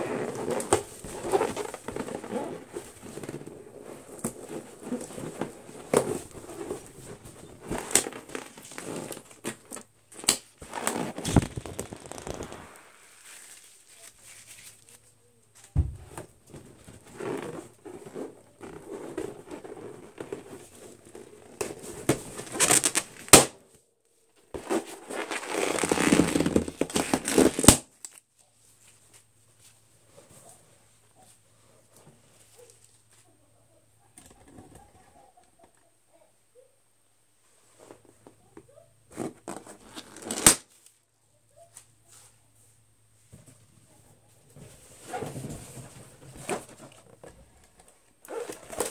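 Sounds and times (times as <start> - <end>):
fingers squeaking on balloon rubber: 0.0 - 3.5, 10.6 - 12.9
balloons popping: 4.2 - 13.2, 17.1 - 23.6, 24.6 - 27.9, 39.2 - 40.7.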